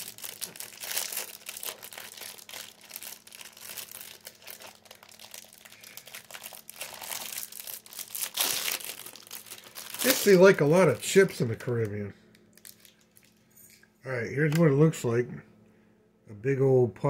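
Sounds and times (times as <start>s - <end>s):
packaging crinkling: 0.0s - 13.4s.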